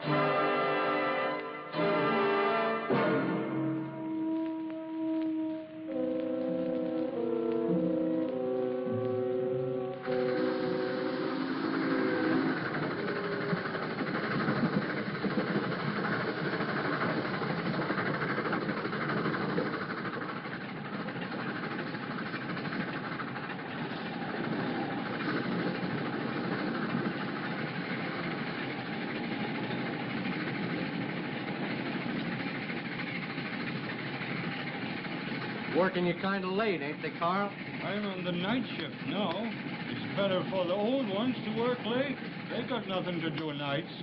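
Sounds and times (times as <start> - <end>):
train rumbling on rails: 0.0 - 44.0.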